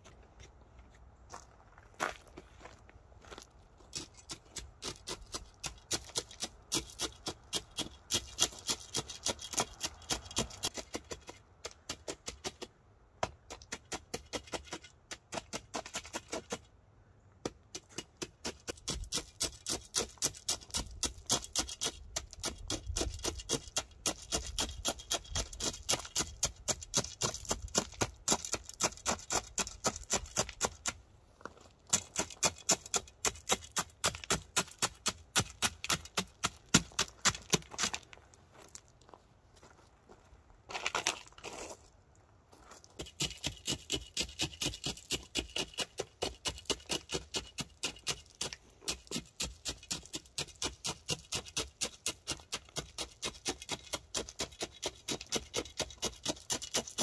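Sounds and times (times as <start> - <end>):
metal bar jabbing into gravel: 18.5 - 31.0, 31.9 - 38.0.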